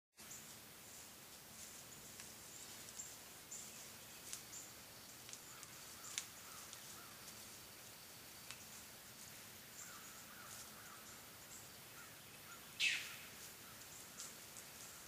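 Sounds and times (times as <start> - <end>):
small birds chirping: 0.2 - 15.0
lower bird calls: 5.4 - 7.6, 9.7 - 15.0.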